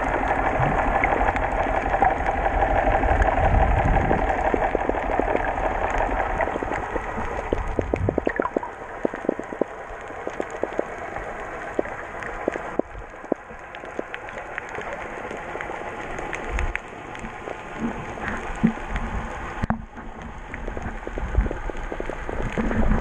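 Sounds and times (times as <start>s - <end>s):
low rumble: 0.0s - 14.2s
steady underwater hiss: 0.0s - 23.0s
underwater clicks and crackles: 0.0s - 23.0s.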